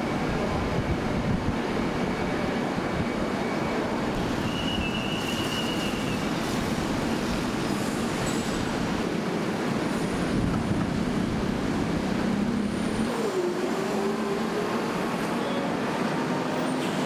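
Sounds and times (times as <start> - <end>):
city road traffic: 0.0 - 17.0.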